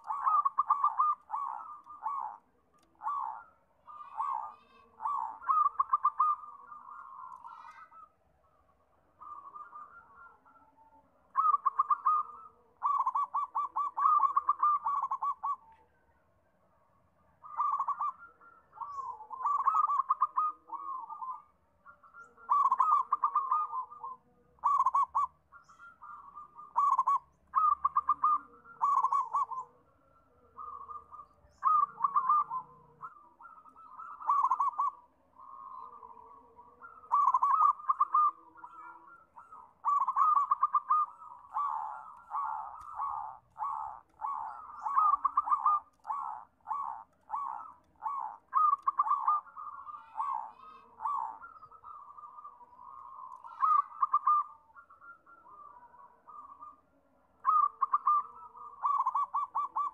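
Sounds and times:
dove cooing: 0.0 - 16.1, 17.2 - 59.9.

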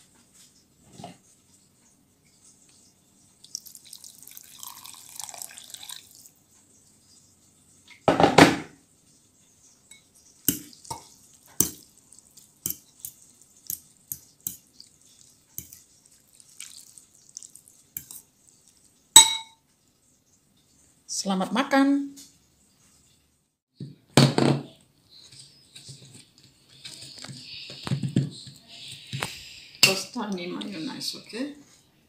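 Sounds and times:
liquid splashing in a bowl: 3.4 - 6.4, 10.2 - 19.3
fork clinking against ceramic bowl: 9.9 - 12.0, 12.6 - 14.7, 15.6 - 15.8, 19.2 - 19.6.

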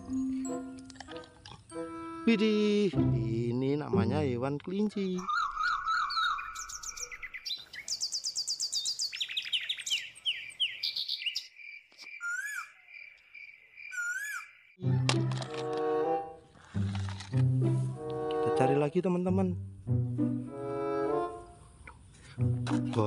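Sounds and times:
birds chirping and trilling: 4.8 - 14.8
evenly pulsing bird call: 5.2 - 11.5, 12.2 - 12.9, 13.8 - 14.7.

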